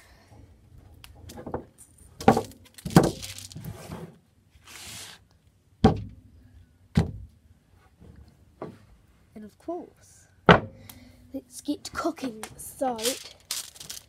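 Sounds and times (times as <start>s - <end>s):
plastic bag rustling: 2.3s - 3.9s, 12.8s - 14.0s.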